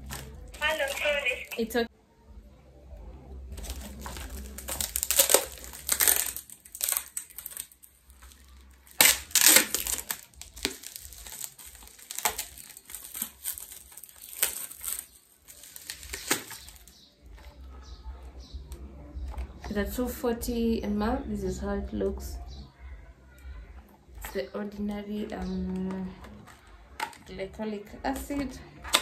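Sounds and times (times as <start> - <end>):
wrapping paper tearing and crinkling: 0.0 - 1.6, 3.5 - 17.6.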